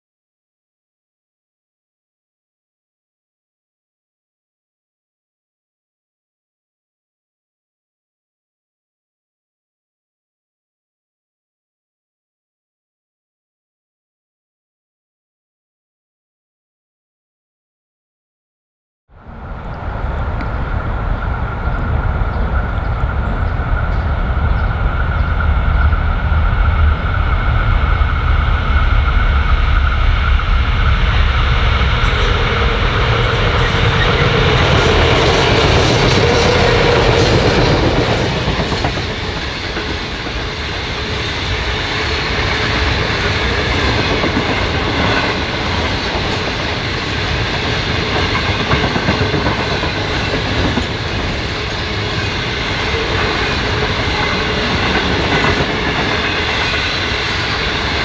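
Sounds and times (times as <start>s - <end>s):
diesel locomotive engines passing: 19.1s - 58.0s
wagon wheels clacking on rail joints: 32.0s - 41.2s, 41.9s - 58.0s.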